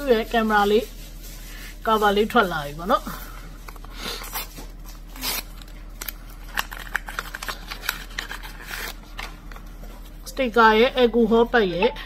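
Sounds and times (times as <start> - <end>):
paper packaging rustling: 0.0 - 10.2
sachet tearing open: 3.6 - 9.6.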